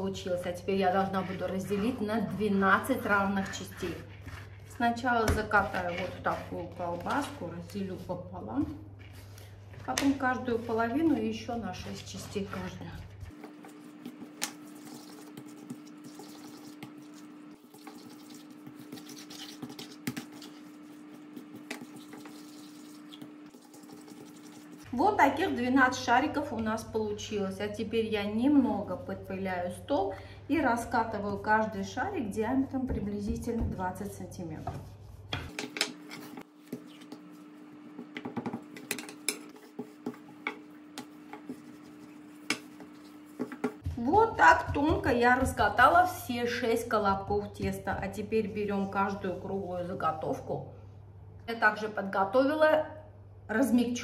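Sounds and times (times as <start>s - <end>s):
dough rubbing as rolled: 0.8s - 8.2s, 9.0s - 25.0s, 33.2s - 46.1s.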